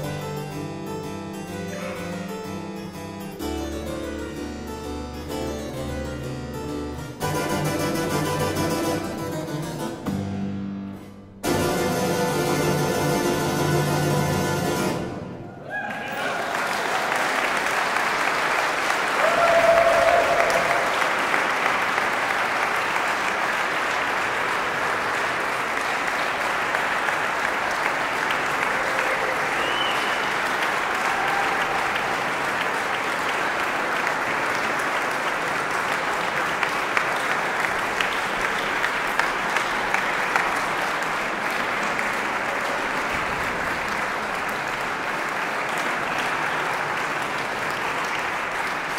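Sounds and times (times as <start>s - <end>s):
harpsichord note: 0.0s - 15.5s
audience applauding: 11.5s - 48.9s.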